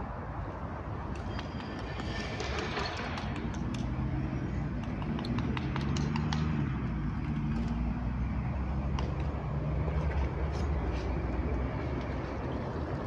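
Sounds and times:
sharp clicks and knocks: 1.1 - 4.1, 4.7 - 7.8.

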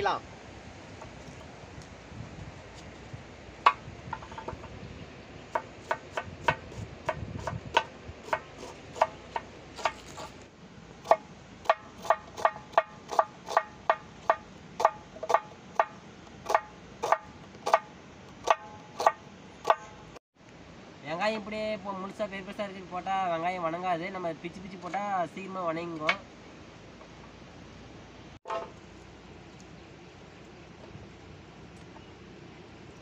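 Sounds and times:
knife chopping onion on wood: 5.6 - 10.2, 11.0 - 19.9.

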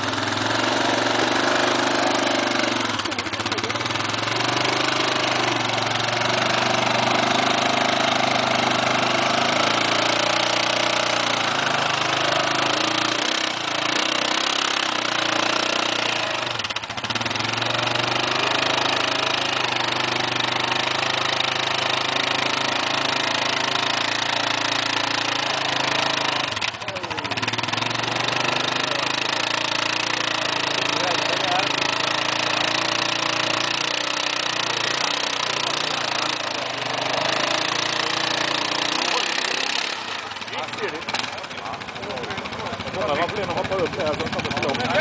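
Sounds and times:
atv engine running at low revs: 0.0 - 45.0.

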